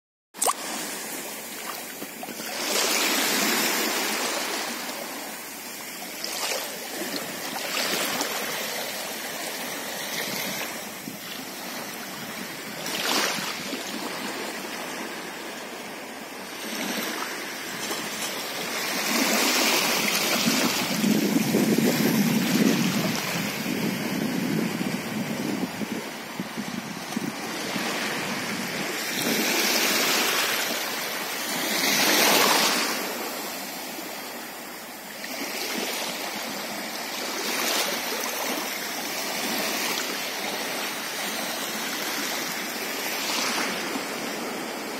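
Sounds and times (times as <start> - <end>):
small waves lapping: 0.4 - 24.3
wind noise on microphone: 9.4 - 14.6, 16.6 - 33.3.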